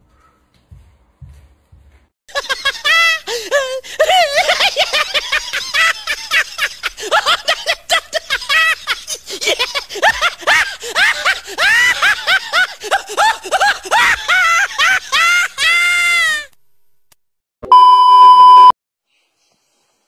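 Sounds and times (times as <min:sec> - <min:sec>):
hysterical human laughter: 0:02.3 - 0:16.4.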